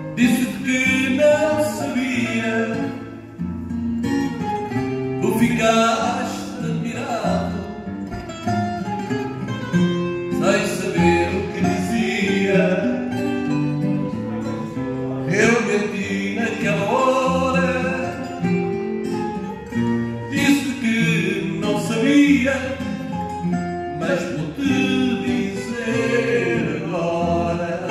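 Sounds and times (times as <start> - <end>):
man singing into a microphone: 0.0 - 3.2, 5.2 - 7.9, 10.3 - 13.4, 14.1 - 18.7, 20.2 - 23.3, 24.0 - 27.9
plucked acoustic guitar: 0.0 - 27.9.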